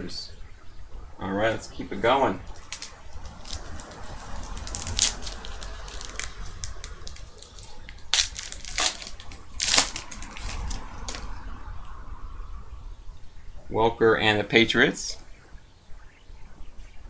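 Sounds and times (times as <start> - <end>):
foil wrapper crinkling and tearing: 2.6 - 11.2.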